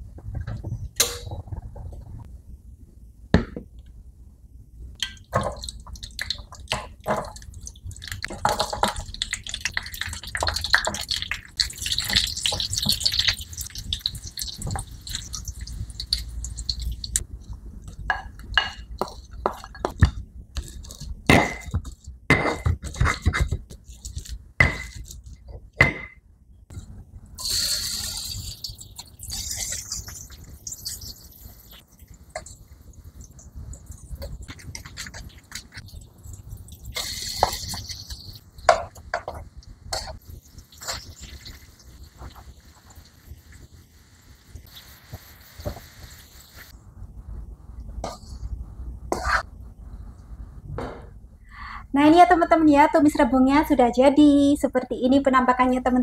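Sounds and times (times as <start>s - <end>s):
oil hissing in pan: 27.4s - 31.8s, 40.0s - 46.8s.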